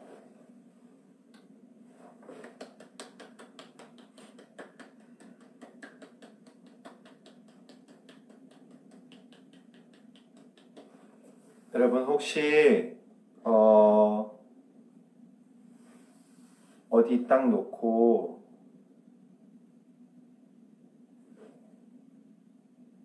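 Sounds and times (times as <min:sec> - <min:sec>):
faint quick hand claps: 0:02.2 - 0:11.0.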